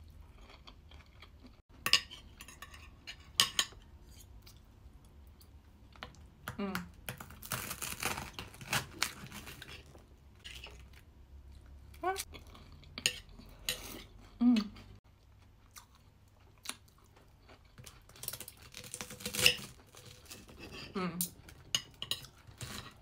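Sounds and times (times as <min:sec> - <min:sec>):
cutlery scraping on plate: 0:01.9 - 0:04.3.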